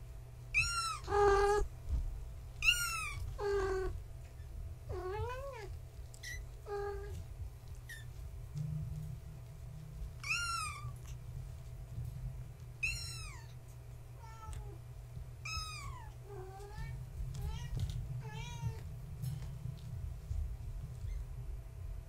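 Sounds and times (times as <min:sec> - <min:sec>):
steady low hum: 0:00.0 - 0:22.0
kittens meowing: 0:00.6 - 0:01.7, 0:02.6 - 0:04.0, 0:10.2 - 0:11.2, 0:12.8 - 0:13.6, 0:15.4 - 0:18.8.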